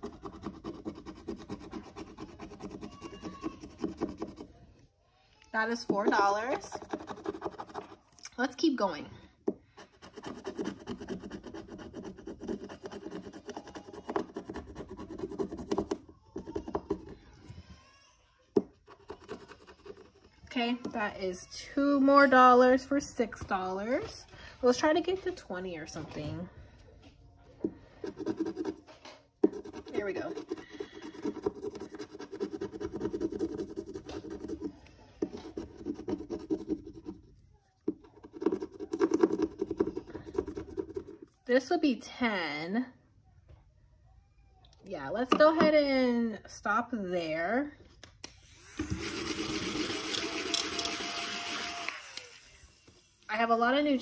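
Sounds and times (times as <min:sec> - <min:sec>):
scratching a scratch-off sticker: 0:00.0 - 0:04.5, 0:06.5 - 0:08.1, 0:09.8 - 0:15.8, 0:29.4 - 0:37.4.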